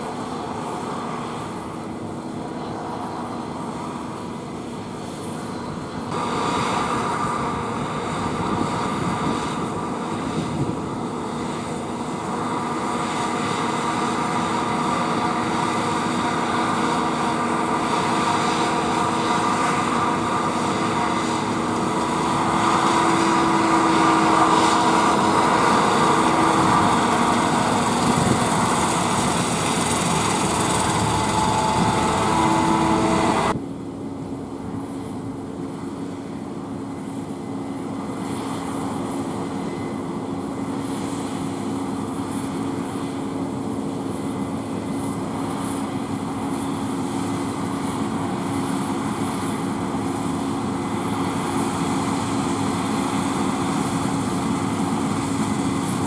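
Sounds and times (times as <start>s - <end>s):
combine harvester engine drone: 0.0s - 56.0s
machinery whining tones: 6.2s - 33.7s.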